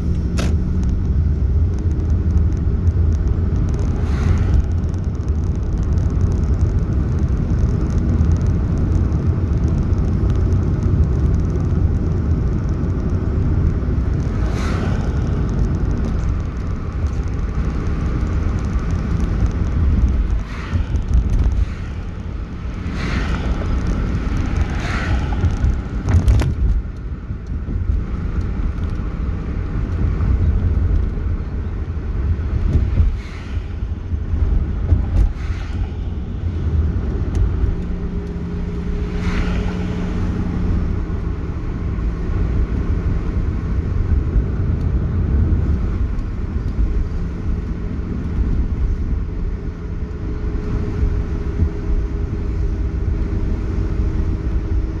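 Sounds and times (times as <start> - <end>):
car road noise rumble: 0.0 - 55.0
cars whooshing past: 3.8 - 4.8, 14.2 - 17.6, 20.2 - 26.5, 32.6 - 41.0.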